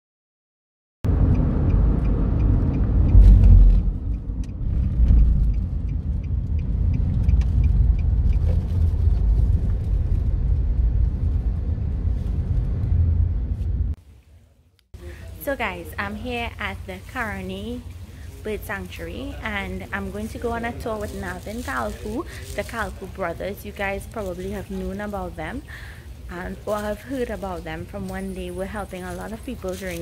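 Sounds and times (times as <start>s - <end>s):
car driving rumble: 1.1s - 14.0s.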